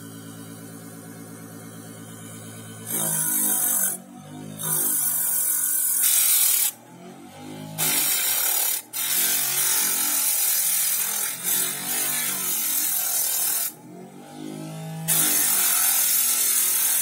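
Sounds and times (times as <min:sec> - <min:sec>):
electric motor hum: 0:00.0 - 0:09.6.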